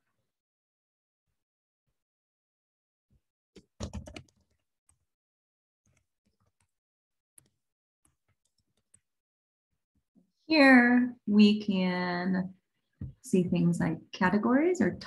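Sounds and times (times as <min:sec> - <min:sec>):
typing on computer keyboard: 0:03.6 - 0:04.5.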